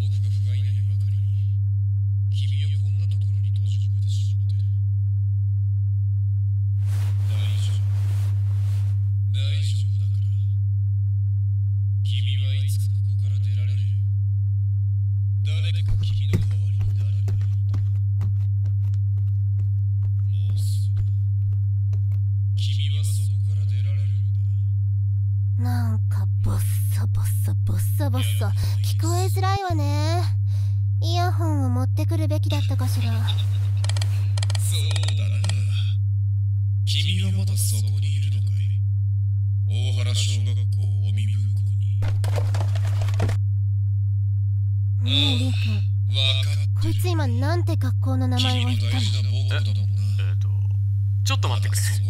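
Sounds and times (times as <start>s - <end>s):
loud low hum: 6.6s - 14.4s, 15.3s - 36.2s
garbled man's voice: 7.2s - 8.0s, 9.4s - 10.4s, 15.5s - 18.0s, 20.2s - 21.2s, 22.6s - 24.6s, 28.0s - 29.7s, 34.5s - 36.0s, 36.9s - 38.8s, 39.7s - 42.1s, 45.0s - 47.2s, 48.3s - 50.7s
crackling clicks: 33.7s - 35.6s.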